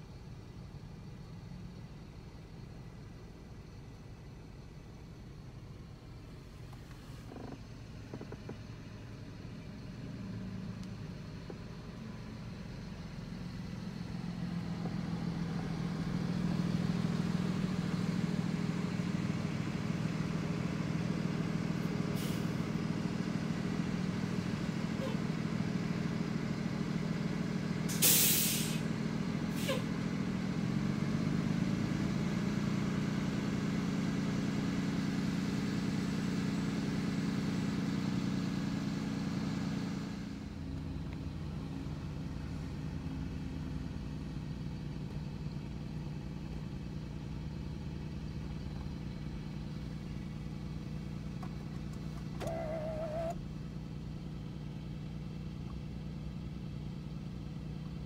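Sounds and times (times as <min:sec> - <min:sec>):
bus engines running: 0:00.0 - 0:58.0
air brakes hissing: 0:22.2 - 0:22.6, 0:27.9 - 0:28.9, 0:29.5 - 0:30.0.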